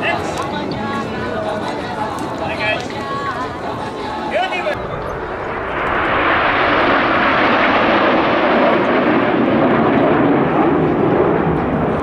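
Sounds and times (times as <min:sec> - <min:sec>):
jet aircraft flying past: 0:04.7 - 0:12.0.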